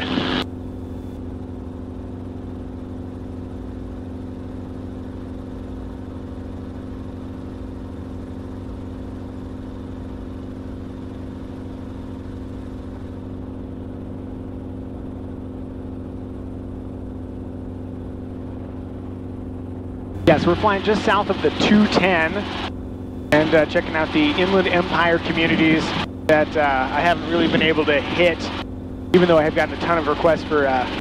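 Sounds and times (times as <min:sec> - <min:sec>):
helicopter engine and rotor drone: 0:00.0 - 0:31.0.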